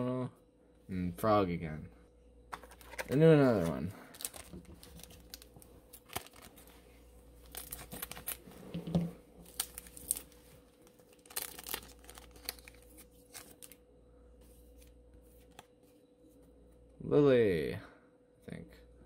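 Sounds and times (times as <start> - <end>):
foil pack tearing and crinkling: 2.7 - 6.7, 7.4 - 8.5, 9.4 - 13.8.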